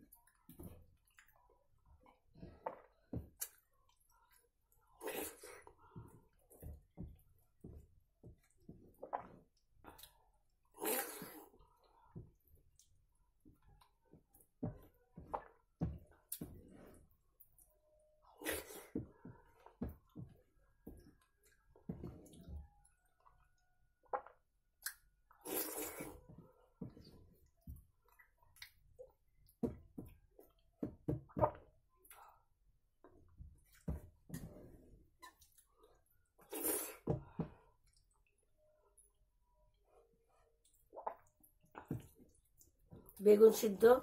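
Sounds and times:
hissy scrape or slurp: 0:25.4 - 0:26.2.

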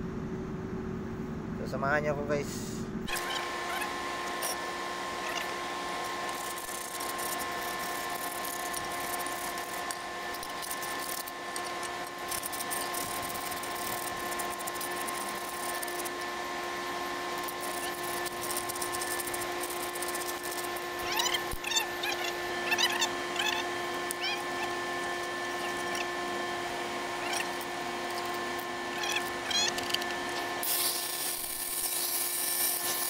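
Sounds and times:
machine whine: 0:02.7 - 0:33.0
metal parts scraping and clicking: 0:06.2 - 0:16.2, 0:17.4 - 0:24.4, 0:27.2 - 0:33.0.

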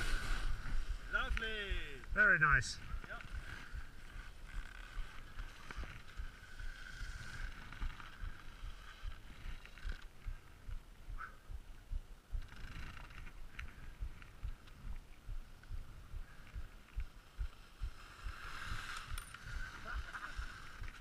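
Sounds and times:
skis sliding on snow: 0:00.0 - 0:02.0, 0:18.0 - 0:21.0.

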